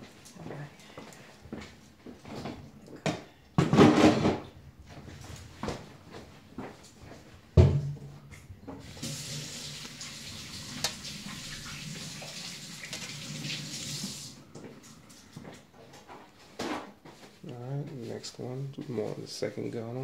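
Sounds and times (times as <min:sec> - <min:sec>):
kitchen tap running water: 0:08.8 - 0:14.4.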